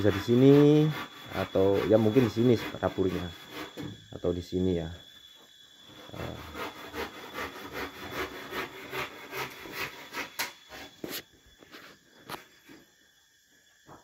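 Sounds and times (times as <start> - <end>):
hand saw cutting wood: 0.0 - 3.9, 5.9 - 11.2.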